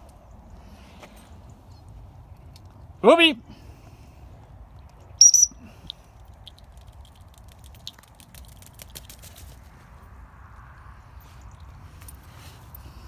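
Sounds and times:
high-pitched whistle blast: 0:05.2 - 0:05.6.

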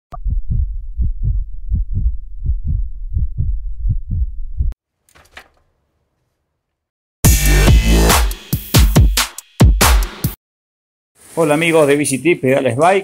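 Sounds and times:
heartbeat thumps: 0:00.1 - 0:04.8.

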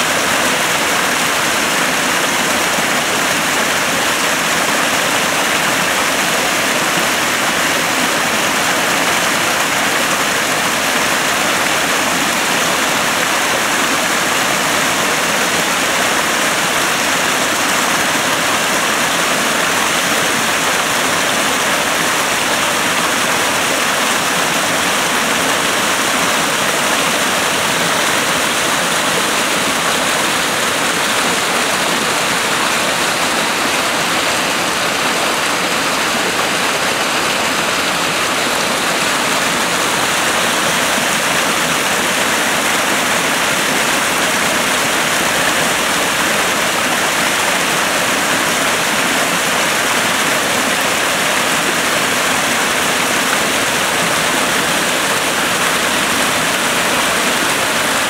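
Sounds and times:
brook splashing over rocks: 0:15.2 - 0:58.0.

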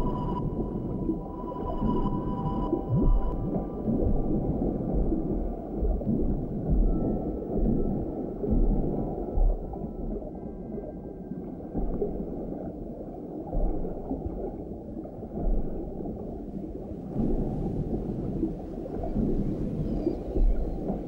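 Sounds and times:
deep underwater thuds: 0:00.0 - 0:10.8, 0:11.7 - 0:21.0
low gurgling underwater churn: 0:00.0 - 0:21.0
faint thin whale calls: 0:19.0 - 0:21.0.

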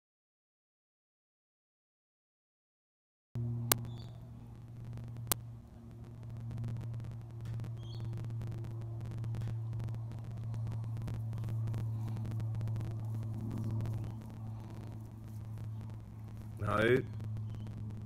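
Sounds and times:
machine humming: 0:03.4 - 0:18.0
faint crackling clicks: 0:03.7 - 0:18.0.

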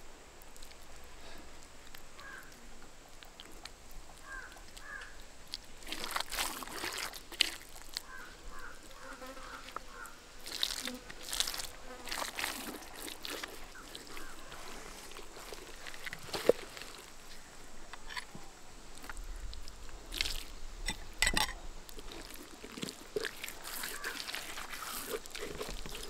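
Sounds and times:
hands squelching and rubbing paste: 0:05.5 - 0:08.1, 0:22.1 - 0:26.0.

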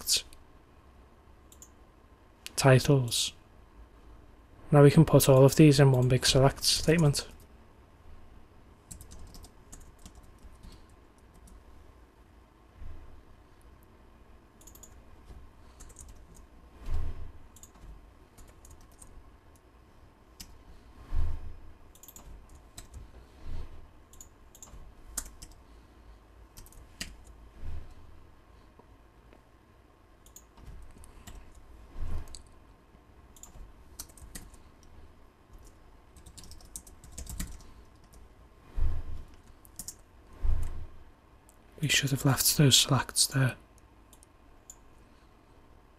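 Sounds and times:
typing on keyboard: 0:08.9 - 0:11.6, 0:14.6 - 0:15.0, 0:15.8 - 0:16.5, 0:17.6 - 0:19.6, 0:21.9 - 0:23.0, 0:24.1 - 0:25.6, 0:26.6 - 0:27.3, 0:33.4 - 0:34.6, 0:35.5 - 0:38.2, 0:39.4 - 0:40.0.

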